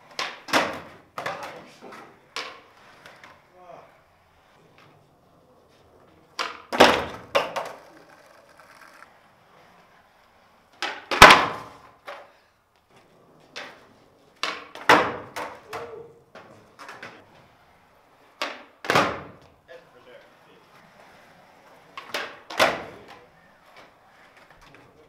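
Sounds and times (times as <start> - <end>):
skateboard tail pops: 0.0 - 1.6, 6.4 - 9.1, 10.8 - 12.3, 14.4 - 17.2, 18.4 - 19.5, 22.0 - 23.2
skateboard deck clattering down: 0.0 - 3.4, 6.3 - 9.9, 10.7 - 12.4, 13.4 - 17.3, 21.8 - 23.2.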